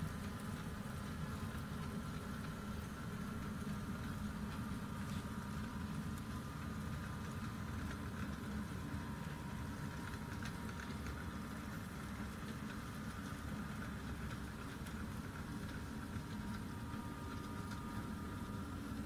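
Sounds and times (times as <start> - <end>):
faint high whine: 0.0 - 19.0.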